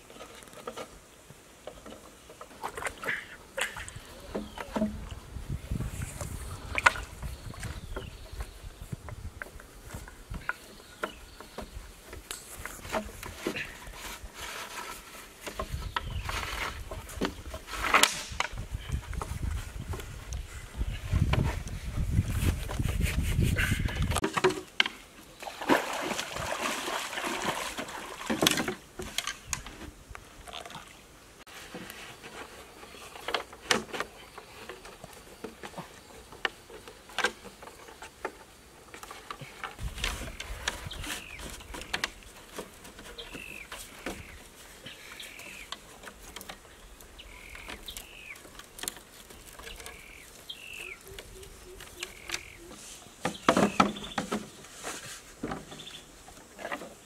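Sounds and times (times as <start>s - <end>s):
bamboo poles knocking: 3.6s - 5.1s, 9.1s - 14.2s, 23.8s - 26.0s, 33.2s - 54.6s, 55.4s - 57.0s
bird chirps: 49.6s - 54.2s.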